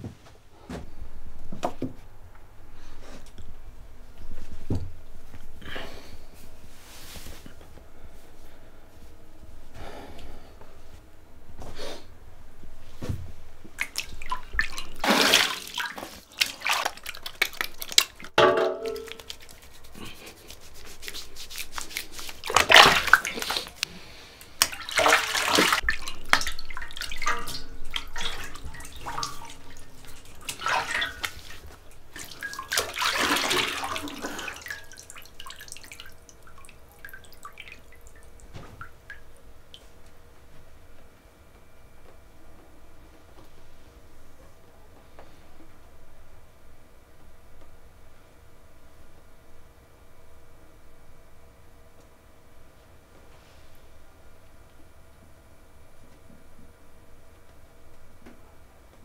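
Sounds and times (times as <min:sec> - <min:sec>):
water splashing and pouring: 0:13.8 - 0:19.7, 0:21.5 - 0:23.8, 0:24.6 - 0:39.2.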